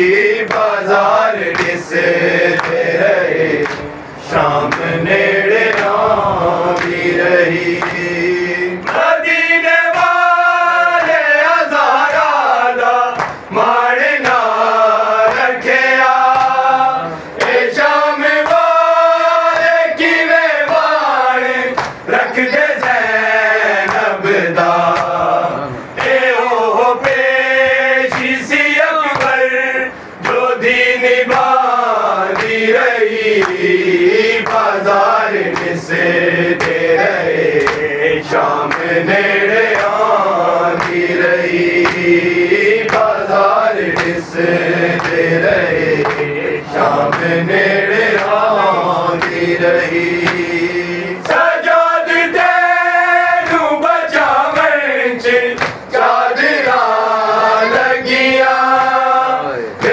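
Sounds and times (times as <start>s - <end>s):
men chanting a lament: 0.0s - 59.9s
chest-beating slaps: 13.1s - 13.4s, 21.8s - 22.1s, 28.1s - 28.4s, 36.6s - 36.9s, 40.8s - 41.1s, 42.8s - 43.1s, 43.8s - 44.2s, 49.2s - 49.4s, 50.2s - 50.5s, 55.6s - 55.9s.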